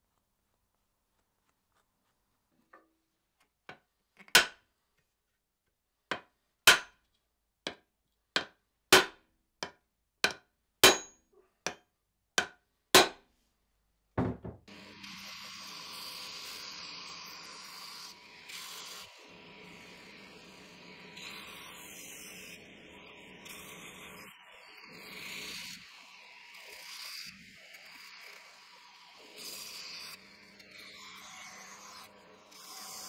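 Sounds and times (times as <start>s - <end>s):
knocks on wooden axe handle: 14.2s - 14.6s
belt grinder hissing: 14.7s - 33.0s.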